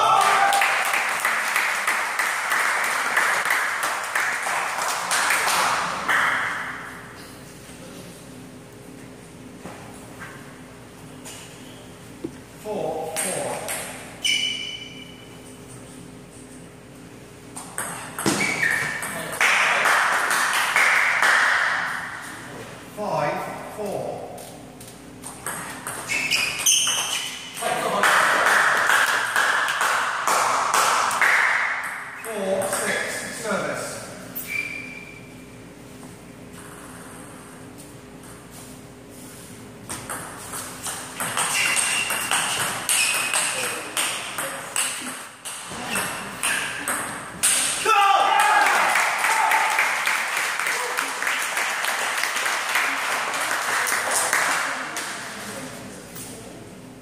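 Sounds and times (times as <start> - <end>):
spectators applauding: 0.0 - 6.3, 48.2 - 55.0.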